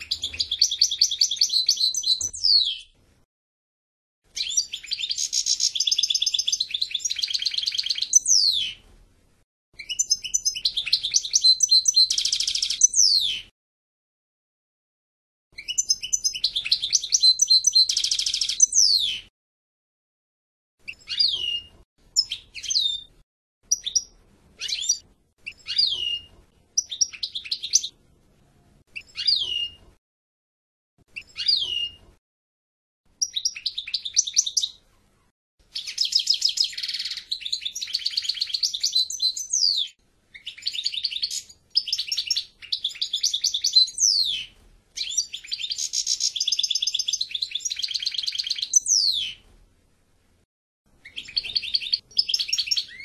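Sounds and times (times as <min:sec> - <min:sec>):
finch singing trills: 0:00.0 - 0:02.9, 0:04.4 - 0:08.8, 0:09.8 - 0:13.5, 0:15.6 - 0:19.3, 0:20.9 - 0:23.1, 0:23.7 - 0:27.9, 0:29.0 - 0:29.8, 0:31.2 - 0:32.0, 0:33.2 - 0:34.8, 0:35.7 - 0:49.4, 0:51.0 - 0:53.0.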